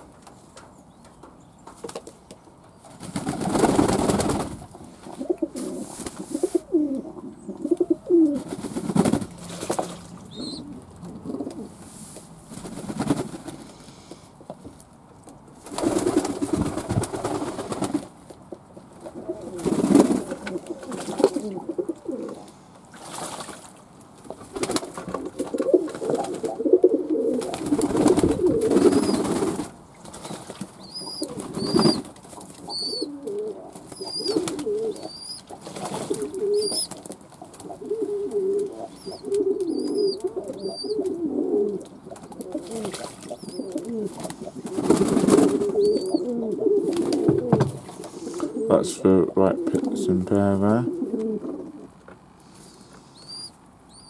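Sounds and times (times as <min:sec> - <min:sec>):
pigeons cooing: 0:03.2 - 0:09.5, 0:10.2 - 0:11.8, 0:19.0 - 0:22.6, 0:24.5 - 0:52.0
faint high chirps: 0:53.1 - 0:54.0.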